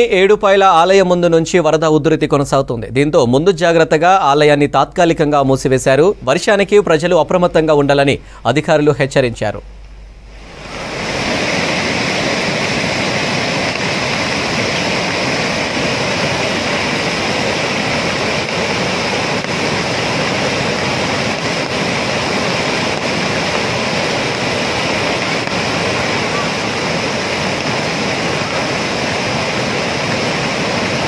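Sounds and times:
floodwater rushing: 10.1s - 31.0s.

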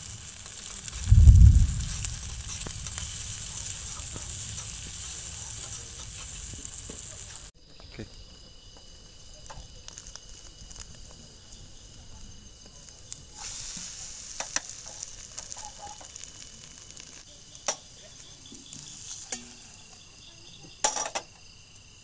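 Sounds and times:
hiss: 0.0s - 7.5s, 8.8s - 22.0s
insects chirring: 0.0s - 22.0s.

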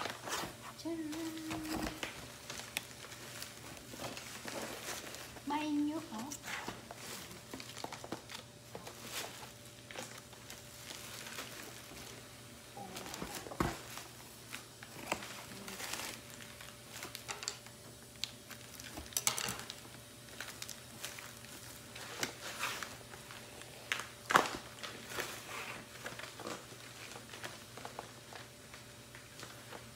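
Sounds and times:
plastic packaging crinkling: 0.0s - 29.9s.

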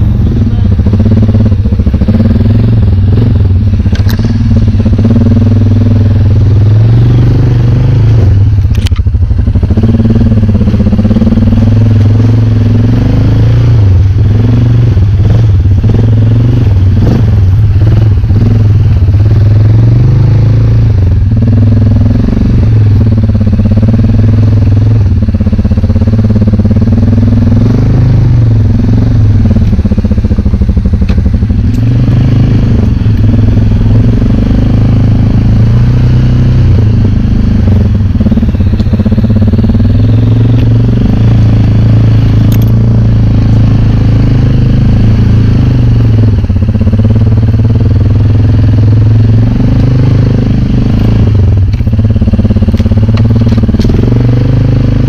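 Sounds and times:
atv engine revving: 0.0s - 55.0s.

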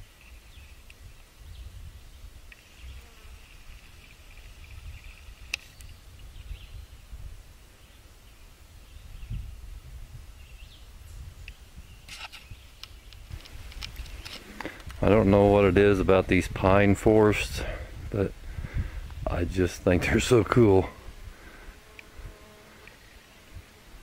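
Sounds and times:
insect buzzing: 2.5s - 6.0s, 21.0s - 24.0s
low microphone rumble: 13.5s - 21.5s.

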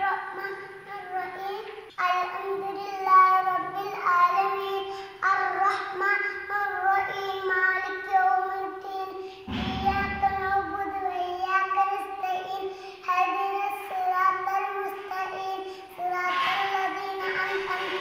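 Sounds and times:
low rumble on microphone: 9.5s - 11.0s.

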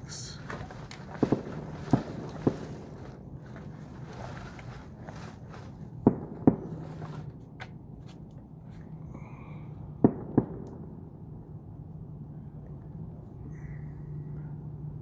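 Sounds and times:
fireworks bangs: 0.4s - 4.2s, 5.9s - 7.4s.

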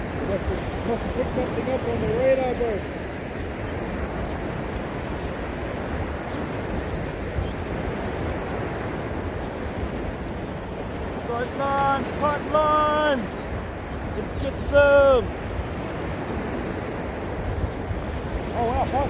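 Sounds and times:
ocean surf breaking: 0.0s - 19.0s
wind: 0.0s - 19.0s.

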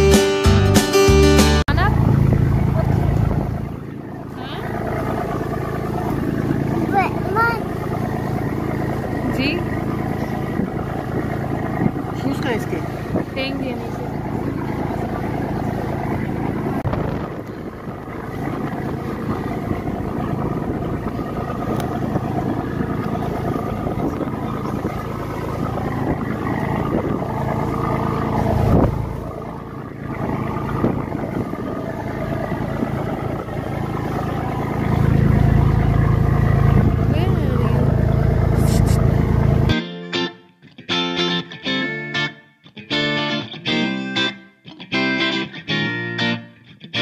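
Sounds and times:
boat engine drone: 0.0s - 40.0s.

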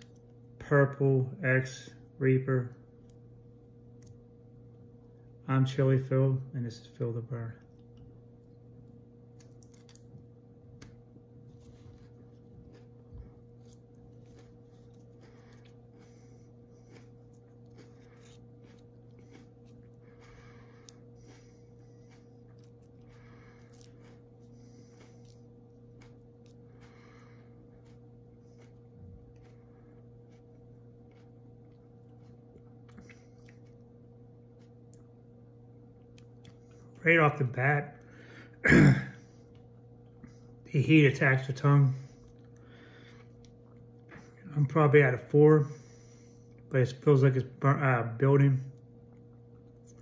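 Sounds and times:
person chewing hot pepper: 0.0s - 1.0s, 2.6s - 5.2s, 7.6s - 37.1s, 41.5s - 44.8s, 45.8s - 46.7s, 48.7s - 50.0s
low electrical hum: 0.0s - 50.0s
chewing mouth clicks and smacks: 9.4s - 10.2s, 30.2s - 33.8s, 36.0s - 37.0s.

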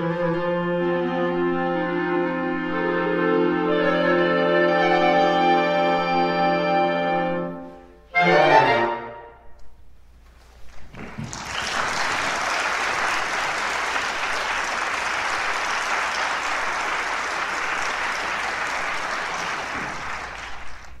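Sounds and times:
audience applauding: 10.7s - 21.0s.

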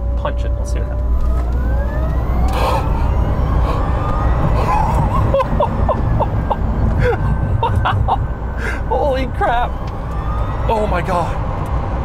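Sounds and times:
road and tyre rumble: 0.0s - 12.0s
electric motors whining: 1.0s - 6.9s.

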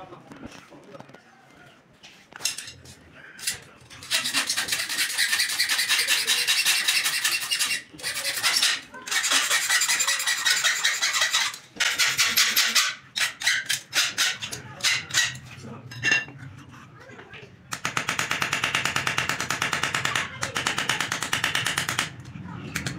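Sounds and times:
hand file rasping on steel: 4.0s - 15.4s.

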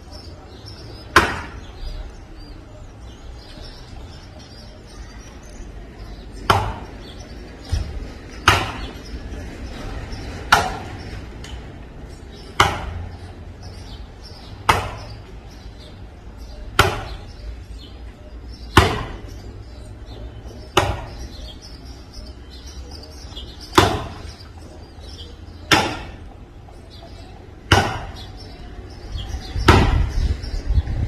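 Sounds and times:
axe chopping wood: 1.1s - 1.6s, 6.4s - 6.9s, 7.8s - 9.0s, 10.5s - 10.9s, 12.5s - 13.0s, 14.6s - 15.1s, 16.7s - 17.2s, 18.8s - 19.2s, 20.7s - 21.1s, 23.7s - 24.2s, 25.7s - 26.2s, 27.6s - 28.3s, 29.6s - 30.1s.

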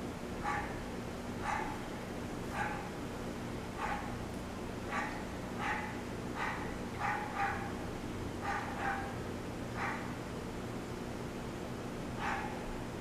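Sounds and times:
dog yipping: 0.4s - 0.8s, 1.4s - 1.8s, 2.5s - 2.9s, 3.8s - 4.2s, 4.9s - 7.8s, 8.4s - 9.2s, 9.8s - 10.2s, 12.2s - 12.6s.

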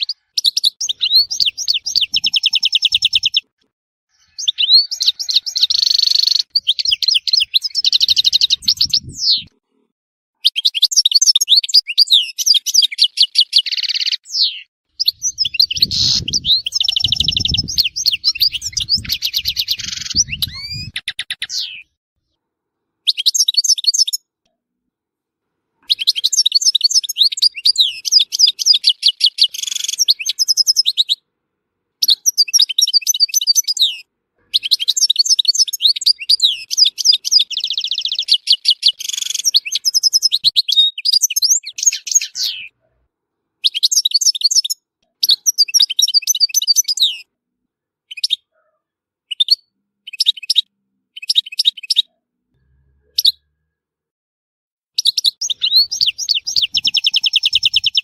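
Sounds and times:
goldfinch twittering and trilling: 0.0s - 3.4s, 4.1s - 9.5s, 10.6s - 21.8s, 25.9s - 31.1s, 32.1s - 42.7s, 55.0s - 58.0s.

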